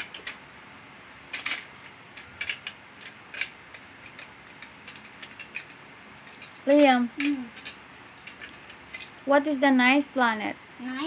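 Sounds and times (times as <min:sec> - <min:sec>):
plastic bricks clicking: 0:01.3 - 0:09.1.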